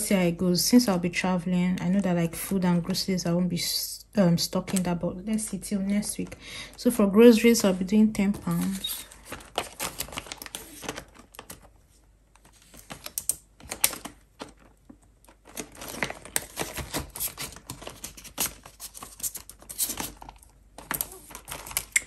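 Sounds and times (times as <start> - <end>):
plastic envelopes crinkling: 4.4 - 22.0.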